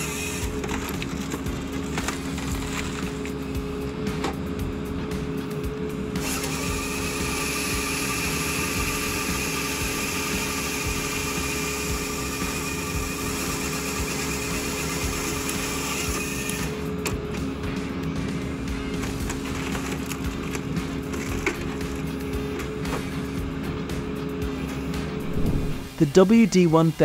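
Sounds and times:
chainsaw cutting log: 0.0s - 3.4s, 6.1s - 17.0s
diesel engine and hydraulics drone: 0.0s - 26.3s.

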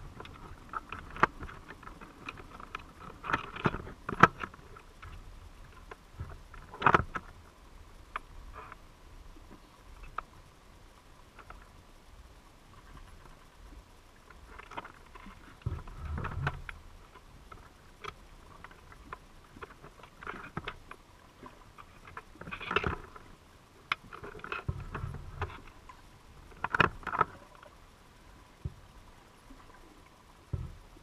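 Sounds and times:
underwater clicks and taps: 0.1s - 7.4s, 14.3s - 27.8s, 28.6s - 28.9s, 30.5s - 30.8s.

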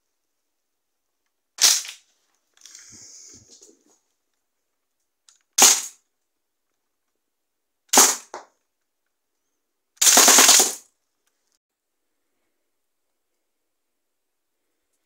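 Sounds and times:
toy gun firing clacks: 1.6s - 2.0s, 10.0s - 10.8s.

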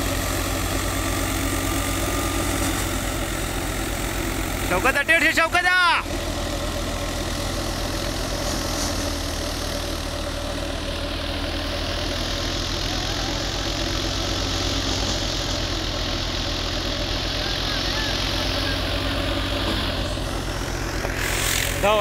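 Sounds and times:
tractor engine droning: 0.0s - 22.0s
thresher rushing noise: 17.1s - 22.0s.

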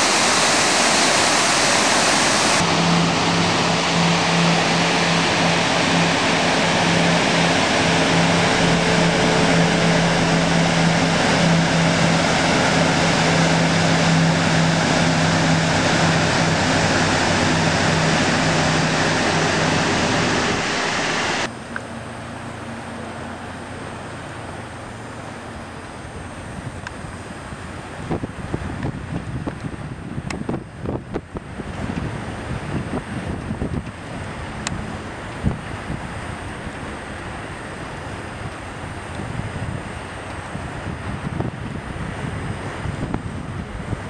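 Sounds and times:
waterfall rushing: 0.0s - 21.5s
boat engine hum: 0.0s - 44.0s
wind on microphone: 26.1s - 44.0s.

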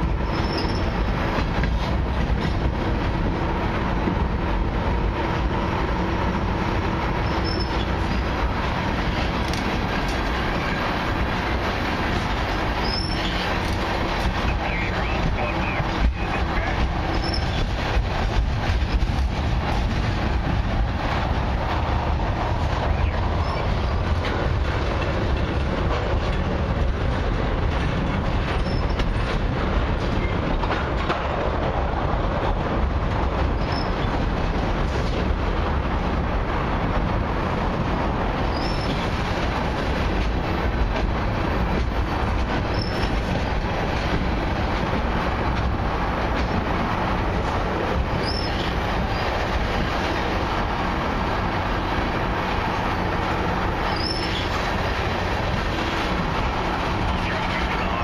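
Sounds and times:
train wheels rumbling on rail: 0.0s - 58.0s.

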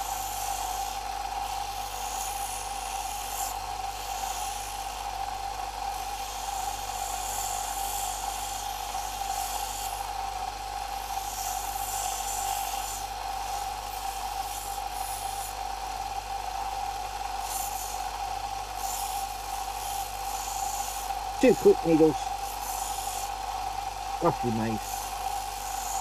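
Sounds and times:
wooden stick rasping on sanding belt: 5.9s - 10.0s, 11.0s - 15.7s, 17.4s - 18.0s, 18.8s - 21.1s.

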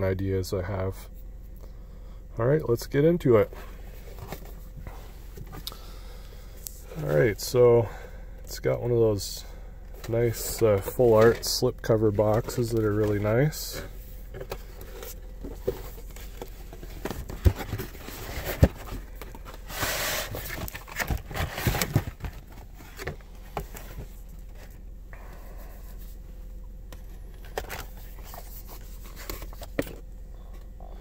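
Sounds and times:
sliding cardboard rustle: 10.1s - 24.7s, 27.4s - 29.9s.

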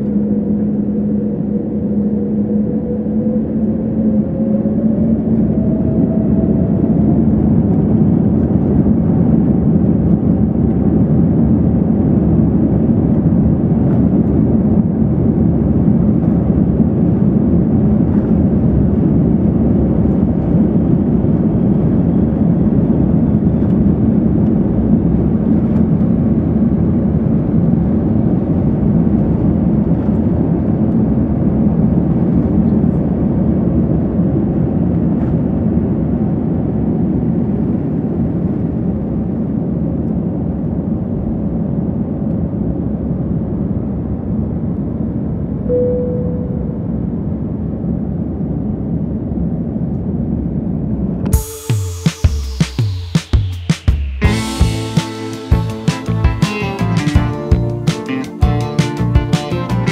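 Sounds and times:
aircraft cabin rumble while taxiing: 0.0s - 45.6s.

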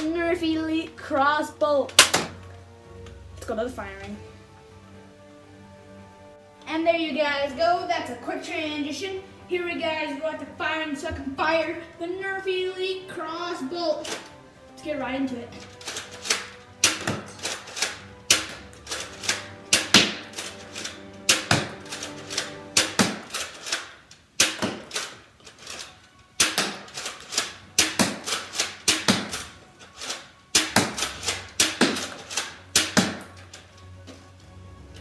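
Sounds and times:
background music: 0.0s - 35.0s
toy blaster shot snapping: 1.9s - 2.4s, 15.8s - 33.4s.

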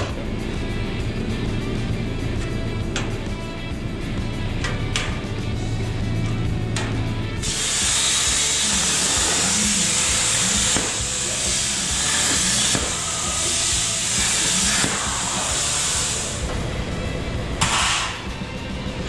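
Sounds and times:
background music: 0.0s - 19.0s
compressed air hissing: 7.4s - 18.3s.

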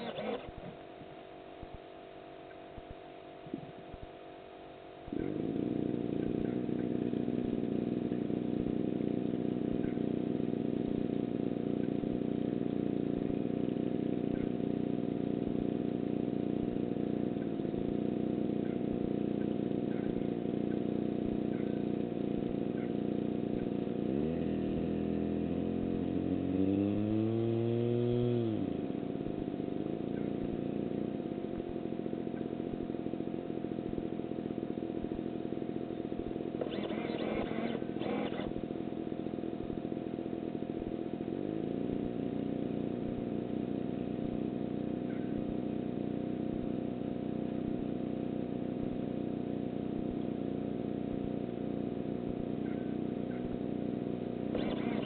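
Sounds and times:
engine revving: 0.0s - 0.6s, 5.1s - 14.5s, 15.3s - 32.8s, 36.1s - 38.7s, 54.4s - 55.0s
faint constant whine: 0.0s - 55.0s.

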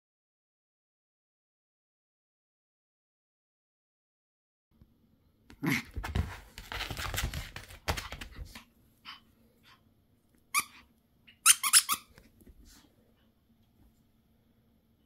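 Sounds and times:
toy squeaks: 10.5s - 10.8s, 11.4s - 12.1s.

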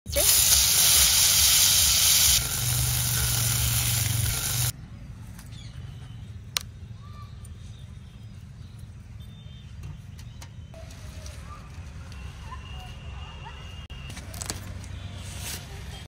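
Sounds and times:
steam hissing: 0.1s - 4.7s.

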